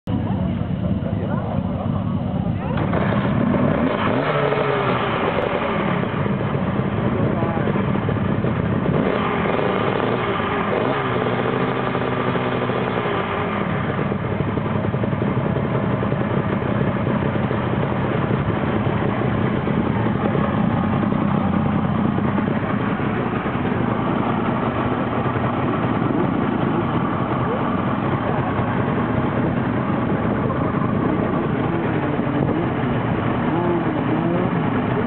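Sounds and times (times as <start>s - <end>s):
two-stroke engine idling: 0.1s - 35.0s.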